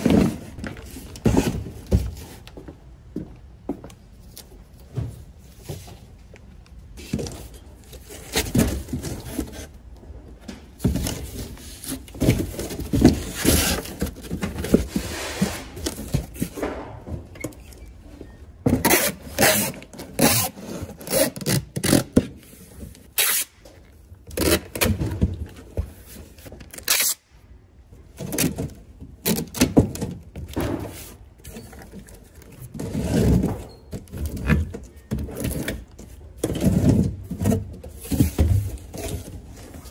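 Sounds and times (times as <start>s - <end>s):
cardboard sheets scraping: 13.0s - 16.4s.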